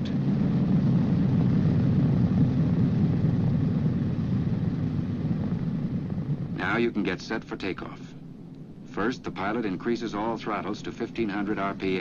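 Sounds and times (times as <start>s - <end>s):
piston aircraft engines droning: 0.0s - 12.0s.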